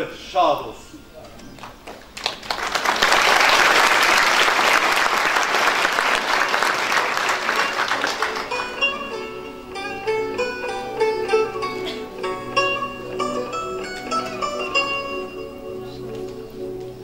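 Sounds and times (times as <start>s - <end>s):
audience applauding: 1.6s - 9.4s, 13.2s - 15.2s
plucked-string instrumental tune: 6.7s - 17.0s.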